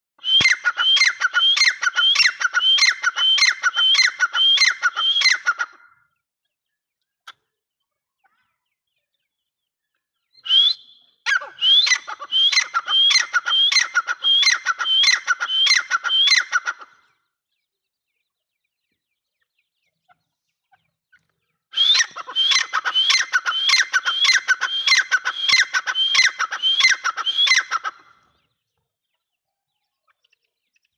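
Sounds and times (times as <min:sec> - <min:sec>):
bird calling repeated notes: 0:00.2 - 0:05.8, 0:10.4 - 0:16.9, 0:21.8 - 0:28.1.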